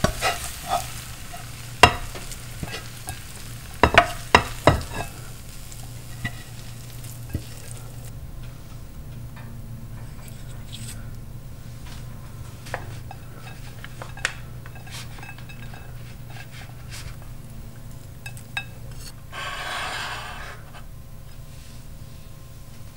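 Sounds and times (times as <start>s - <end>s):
steady low hum: 0.0s - 22.9s
utensils tapping ceramic bowl: 1.8s - 3.2s, 3.8s - 5.1s, 12.7s - 16.4s.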